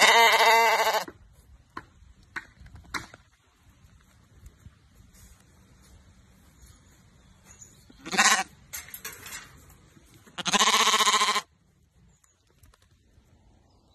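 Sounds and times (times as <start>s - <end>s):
sheep bleating: 0.0s - 1.1s, 8.0s - 8.5s, 10.4s - 11.5s.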